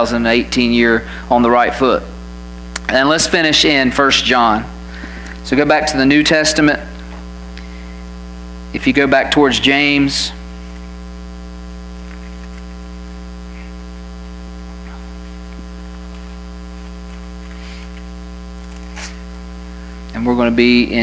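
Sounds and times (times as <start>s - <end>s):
electrical mains hum: 0.0s - 21.0s.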